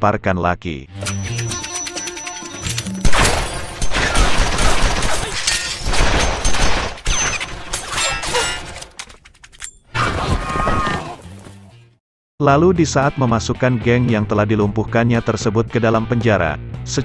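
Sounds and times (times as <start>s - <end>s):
bullet impacts: 1.0s - 9.0s
revolver gunfire: 3.0s - 7.1s.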